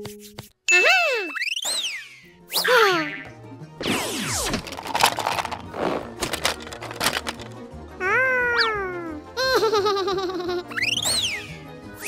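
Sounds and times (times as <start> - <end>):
squeaky cartoon voice: 0.7 - 1.5, 8.0 - 9.0
children's background music: 2.1 - 12.0.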